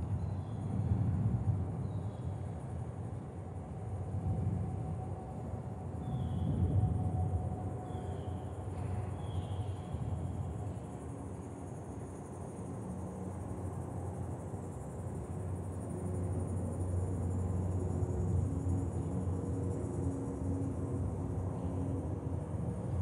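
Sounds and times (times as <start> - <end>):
insects buzzing: 5.6 - 23.0.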